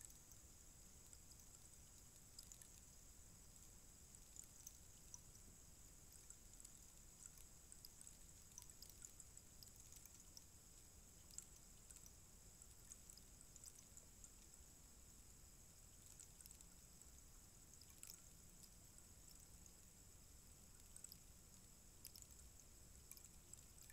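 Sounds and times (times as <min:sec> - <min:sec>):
rainstick trickling clicks: 0:22.0 - 0:23.9.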